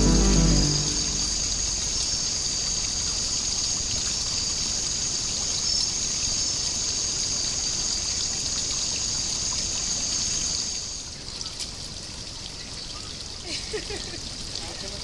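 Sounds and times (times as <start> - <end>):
high-pitched drone: 0.0 - 2.0
stream trickling over rocks: 2.9 - 15.0.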